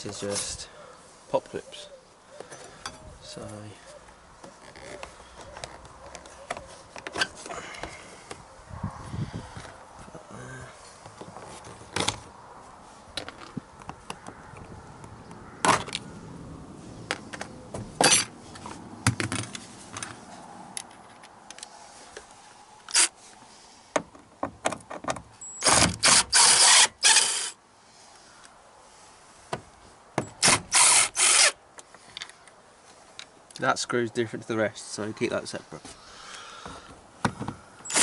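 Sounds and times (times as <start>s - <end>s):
cordless driver bursts: 22.9s - 23.1s, 25.6s - 27.6s, 30.4s - 31.6s.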